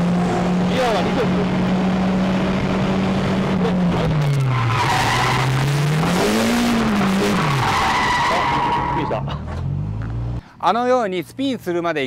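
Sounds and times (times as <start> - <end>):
car engine revving: 0.0 - 10.4
tyres squealing: 4.1 - 9.3.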